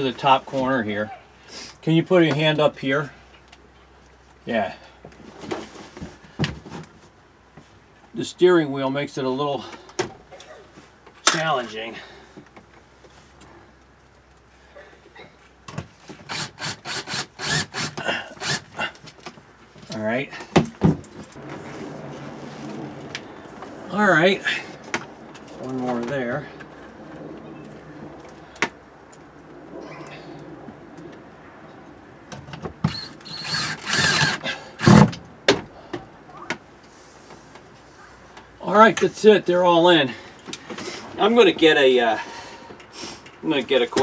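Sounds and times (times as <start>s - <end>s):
cordless drill driving a screw: 16.3s - 18.8s, 32.9s - 35.1s.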